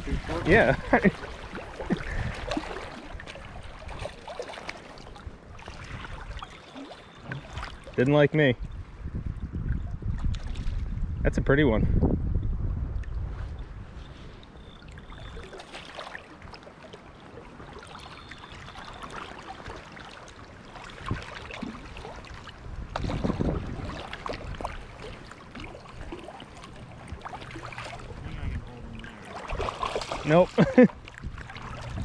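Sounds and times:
stream water rushing: 0:00.0 - 0:08.3, 0:14.8 - 0:32.0.

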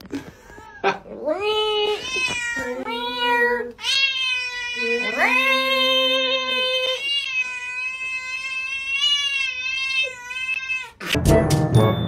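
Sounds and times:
cat yowling: 0:03.8 - 0:11.0.

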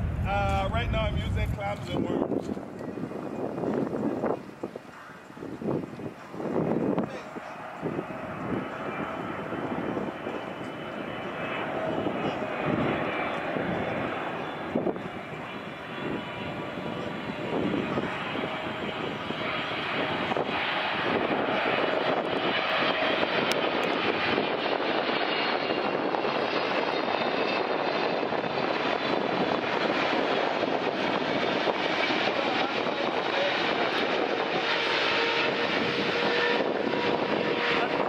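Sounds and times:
jet engine rumble with whine: 0:00.0 - 0:38.0.

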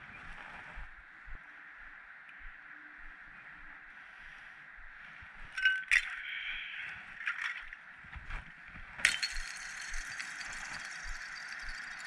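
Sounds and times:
sharp clicks and clinks: 0:09.0 - 0:12.0.

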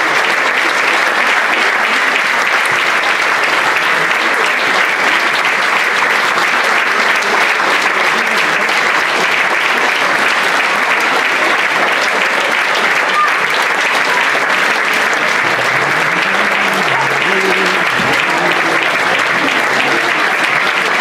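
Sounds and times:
audience applauding: 0:00.0 - 0:21.0.

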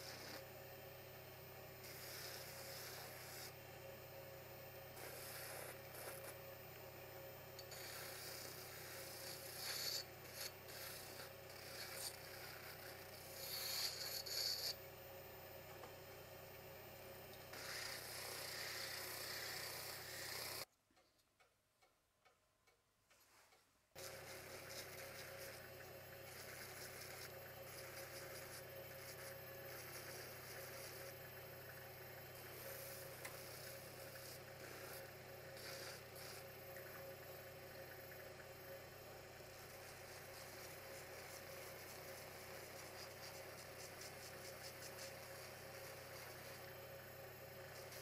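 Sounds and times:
rotary tool sanding wood: 0:00.0 - 0:00.5, 0:01.8 - 0:03.6, 0:04.9 - 0:06.4, 0:07.6 - 0:14.8, 0:17.5 - 0:20.7, 0:24.0 - 0:31.2, 0:32.4 - 0:37.1, 0:39.5 - 0:46.7.

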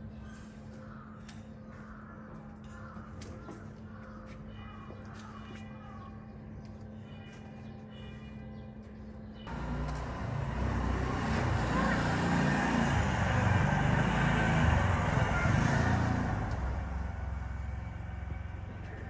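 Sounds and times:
motor vehicle passing: 0:09.5 - 0:19.0.

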